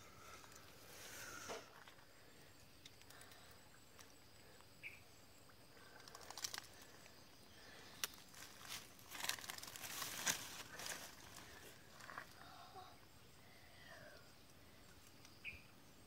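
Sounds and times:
faint high insect drone: 0.0 - 16.0
bamboo trap clicking and rustling: 5.9 - 6.9, 8.0 - 11.2.

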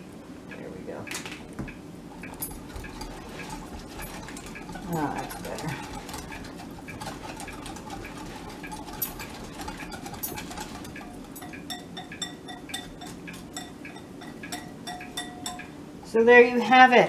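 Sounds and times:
utensil clinking against glass bowl: 2.1 - 15.8.

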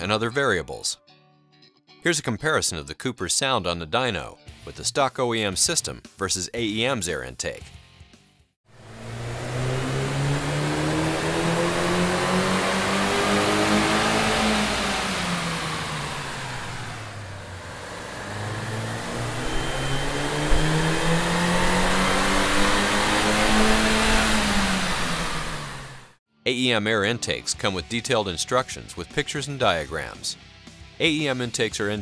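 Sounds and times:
car engine under load: 8.7 - 26.2.

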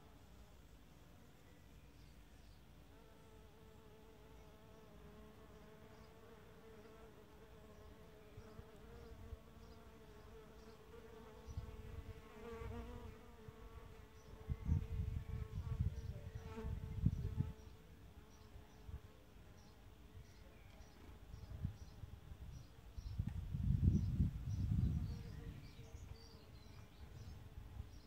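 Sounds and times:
bee buzzing in flight: 3.0 - 17.8.

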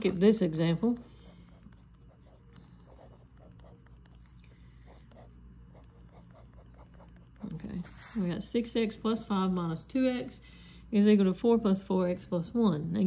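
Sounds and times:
low steady hum: 0.0 - 13.0
pen scratching on paper: 1.3 - 8.4.

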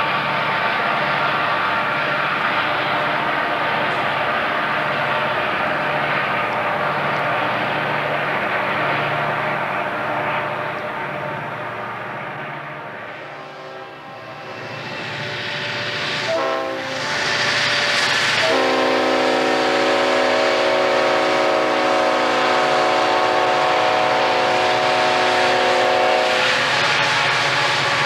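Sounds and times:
diesel locomotives passing: 0.0 - 28.0
locomotive air horn blasts: 12.6 - 14.3, 16.2 - 17.2, 18.2 - 26.8.

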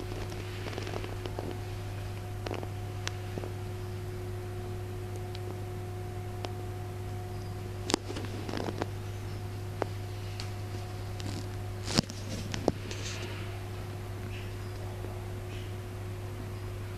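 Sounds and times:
low electrical hum: 0.0 - 16.9
faint high steady tone: 6.0 - 7.8.

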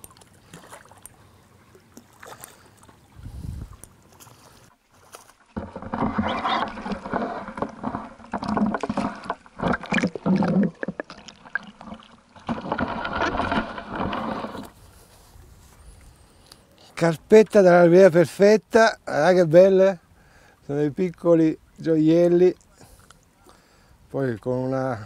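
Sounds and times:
muffled water sloshing and gurgling: 0.0 - 14.8.

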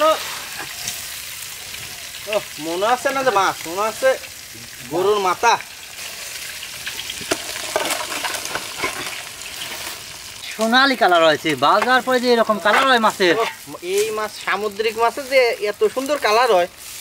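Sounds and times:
hot oil sizzling: 0.0 - 17.0
person speaking: 10.4 - 16.7.

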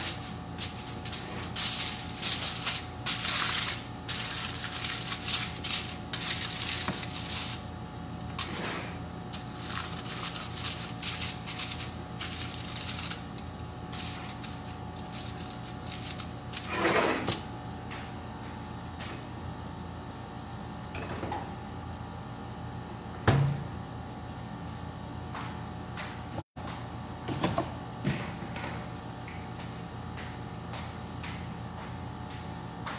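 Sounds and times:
aluminium foil crinkling: 0.0 - 8.5, 9.3 - 16.7
steady low hum: 0.0 - 32.9.

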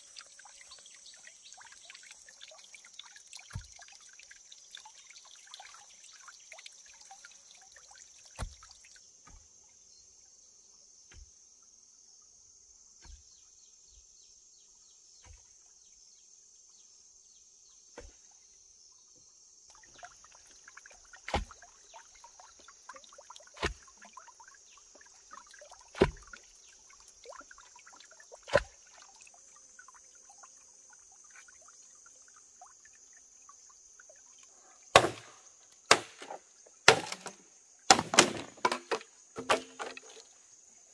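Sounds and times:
chopping strokes on wood: 8.4 - 9.5, 11.1 - 11.4, 13.0 - 13.4, 18.0 - 18.3, 21.2 - 21.6, 23.6 - 24.0, 26.0 - 26.3, 28.5 - 28.8, 34.9 - 40.2.

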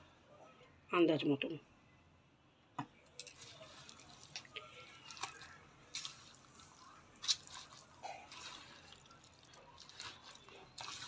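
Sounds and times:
spoon mixing wet food: 3.1 - 11.0.

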